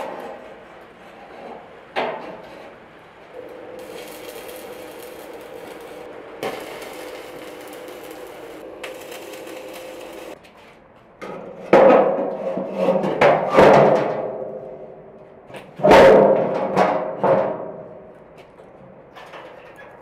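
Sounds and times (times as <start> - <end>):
arc welder hissing: 3.4 - 10.4.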